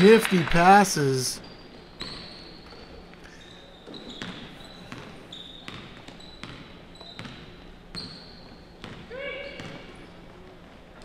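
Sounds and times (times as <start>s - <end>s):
sneaker squeaks: 1.4s - 10.3s
basketball bouncing on wooden floor: 3.8s - 8.1s, 8.8s - 9.9s.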